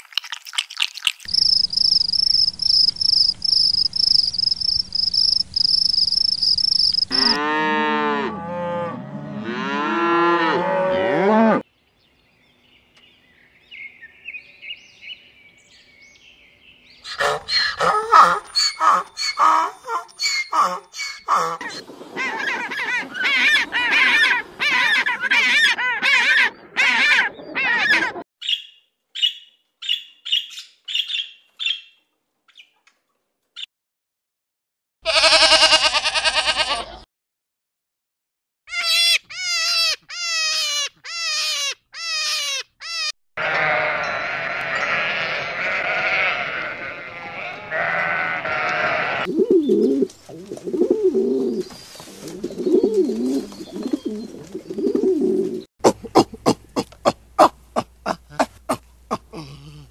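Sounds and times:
goat bleating: 0:35.0 - 0:37.0, 0:43.0 - 0:49.3, 0:55.8 - 0:59.9
pigeons cooing: 0:49.0 - 0:59.9.

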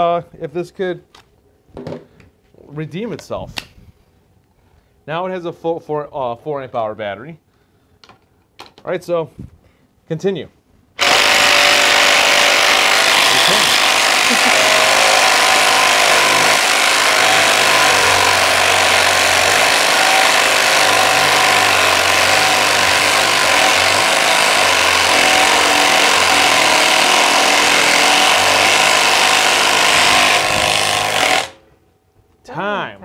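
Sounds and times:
impact driver hammering: 0:11.0 - 0:31.6.

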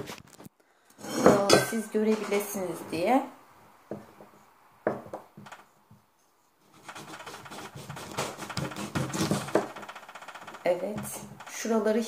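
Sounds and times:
knife cutting pomegranate: 0:06.6 - 0:09.7.

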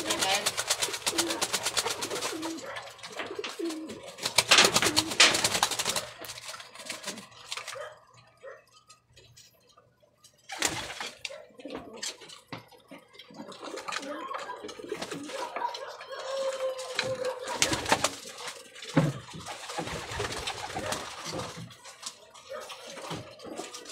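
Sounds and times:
wings flapping: 0:00.0 - 0:08.0, 0:10.4 - 0:12.5, 0:13.3 - 0:23.9
pigeons cooing: 0:00.0 - 0:08.7, 0:10.4 - 0:23.9.

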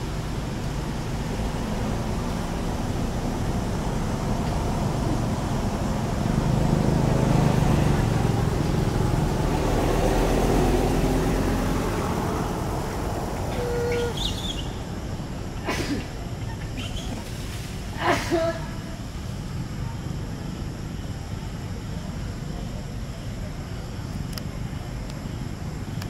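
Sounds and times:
vehicle rumble passing by: 0:00.0 - 0:26.0
short high squeak: 0:13.5 - 0:14.6.

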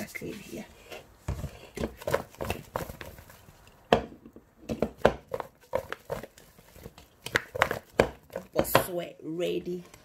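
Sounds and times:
slices knocking in a bowl: 0:07.2 - 0:08.9.

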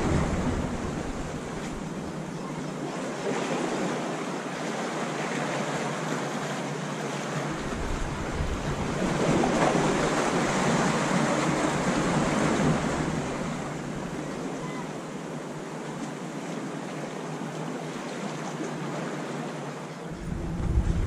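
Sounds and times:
sea waves washing against rocks: 0:00.0 - 0:02.3, 0:03.0 - 0:15.6, 0:20.1 - 0:21.0.

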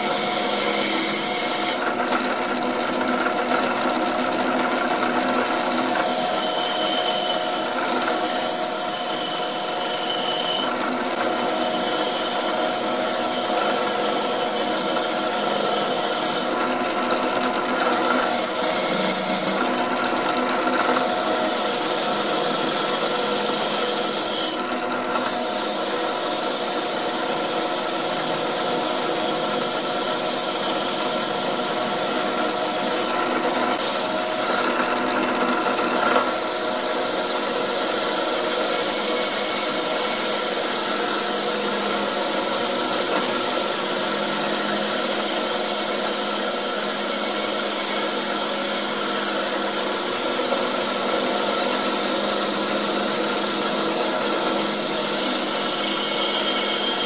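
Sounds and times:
drill press motor hum: 0:00.1 - 0:25.8.

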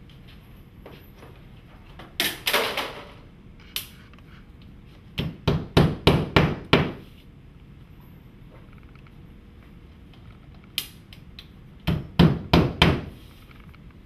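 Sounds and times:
hammer knocking nails: 0:05.2 - 0:07.0, 0:11.8 - 0:13.1.

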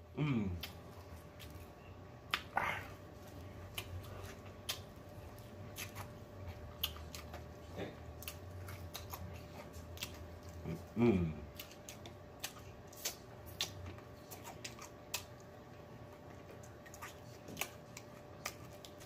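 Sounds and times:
chewing fried chicken: 0:00.2 - 0:19.0
wet lip smacks: 0:02.3 - 0:02.6, 0:03.7 - 0:04.9.

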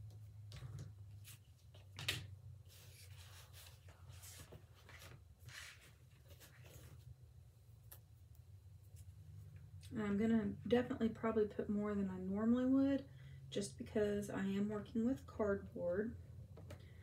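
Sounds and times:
cardboard and paper rustling: 0:00.4 - 0:07.2.

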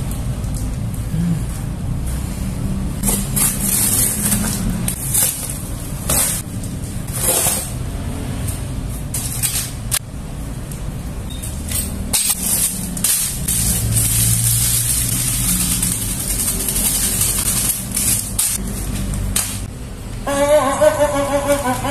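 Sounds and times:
plastic wrapping rustling: 0:12.4 - 0:19.2.

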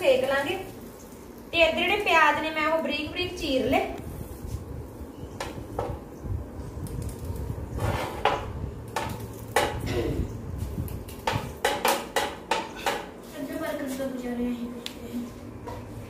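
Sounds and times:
utensils clinking on griddle: 0:11.1 - 0:13.2.

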